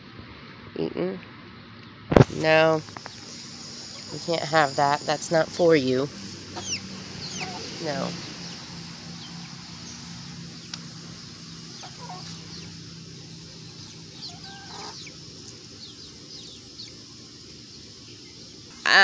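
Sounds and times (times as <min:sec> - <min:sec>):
chickens clucking: 0:02.4 - 0:19.0
faint high chirps: 0:03.0 - 0:08.1.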